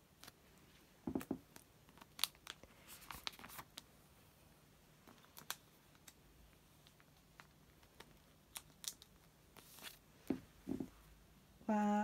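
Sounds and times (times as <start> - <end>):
plastic sleeve rustling: 1.8 - 3.9, 5.0 - 10.9
soft knock: 10.3 - 11.0.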